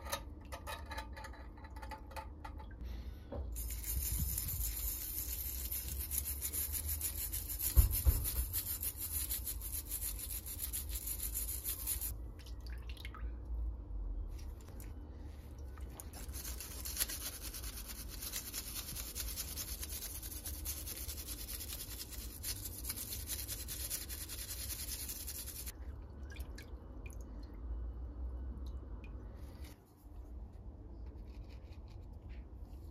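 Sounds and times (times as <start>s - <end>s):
wire brush scrubbing metal: 3.6s - 12.1s, 16.2s - 25.7s.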